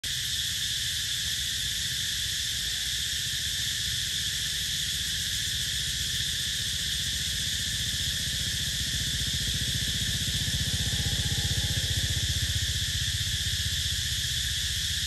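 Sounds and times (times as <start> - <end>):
insects droning: 0.0 - 15.0
motorcycle engine rumble: 6.0 - 15.0.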